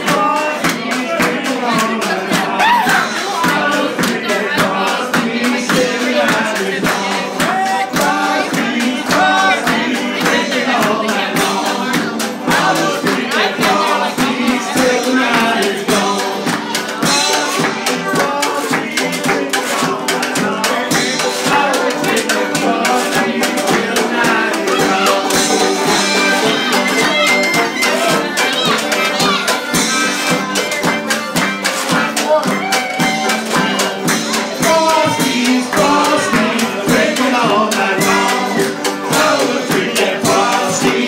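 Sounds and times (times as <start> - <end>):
man singing: 0.0 - 16.7, 32.2 - 41.0
strummed acoustic guitar: 0.0 - 41.0
suitcase drum: 0.0 - 41.0.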